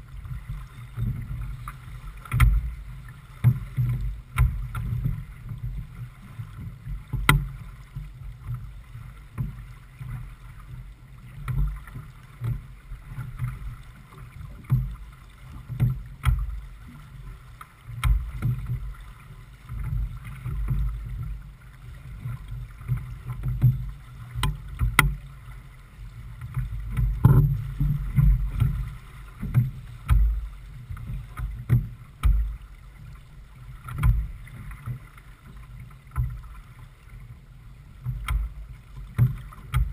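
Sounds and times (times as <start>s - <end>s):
hull moving through choppy water: 0.0s - 39.9s.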